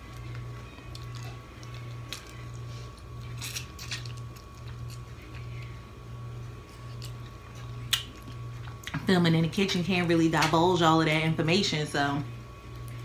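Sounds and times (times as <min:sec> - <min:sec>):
chewing: 0:00.0 - 0:05.8, 0:06.5 - 0:09.0
low pulsing hum: 0:00.0 - 0:13.0.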